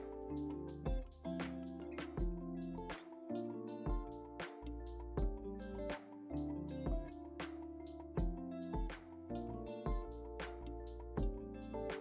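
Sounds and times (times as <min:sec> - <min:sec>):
background music with bass beat: 0:03.9 - 0:12.0.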